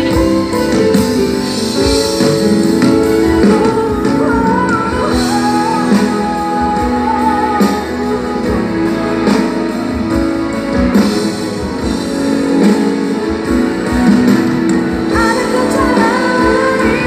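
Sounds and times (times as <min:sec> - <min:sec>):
live pop band playing: 0:00.0 - 0:17.0.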